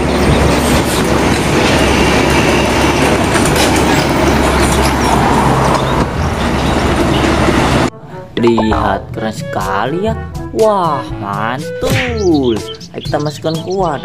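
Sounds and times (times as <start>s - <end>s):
heavy trucks driving past: 0.0s - 8.4s
road noise and rattling: 0.0s - 8.4s, 10.4s - 14.0s.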